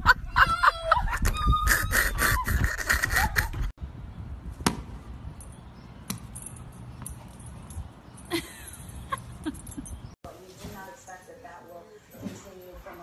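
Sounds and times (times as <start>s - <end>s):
tennis ball bouncing on pavement: 4.5s - 5.1s, 6.0s - 7.2s.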